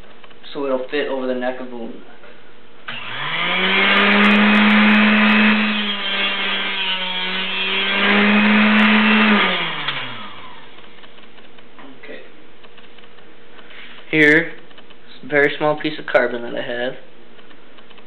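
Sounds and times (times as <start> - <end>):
high-speed power tool whine: 2.9 - 11.1.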